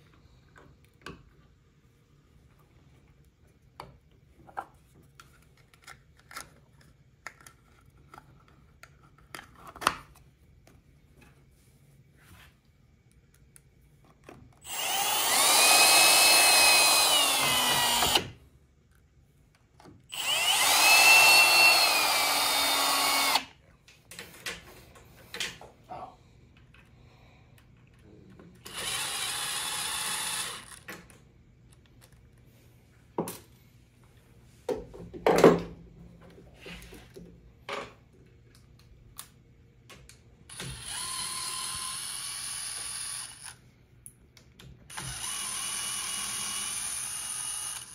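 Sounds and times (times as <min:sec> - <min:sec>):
cordless drill driving screws: 0:14.6 - 0:18.4, 0:20.1 - 0:23.5, 0:28.6 - 0:30.9, 0:40.5 - 0:43.6, 0:44.9 - 0:47.9.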